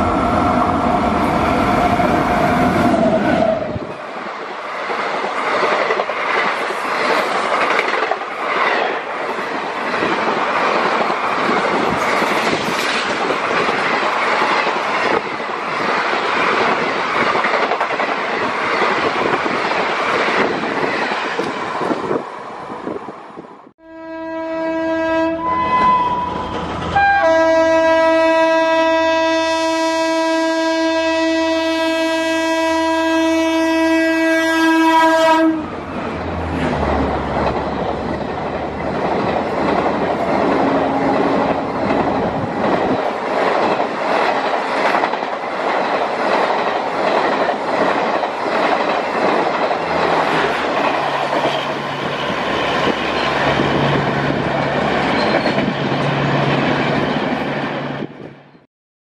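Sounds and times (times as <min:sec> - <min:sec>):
train coaches rushing past: 0:00.0 - 0:23.7, 0:24.6 - 0:28.8, 0:32.8 - 0:58.6
train wheels clickety-clack: 0:04.0 - 0:22.3, 0:36.4 - 0:58.4
train horn blast: 0:23.8 - 0:35.7.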